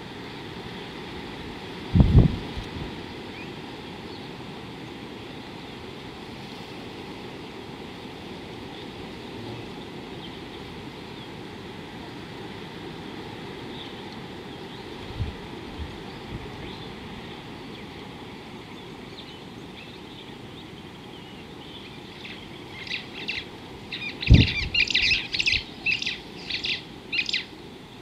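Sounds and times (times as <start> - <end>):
wind rumble on microphone: 0.0 - 4.4, 8.6 - 19.2, 23.3 - 26.8.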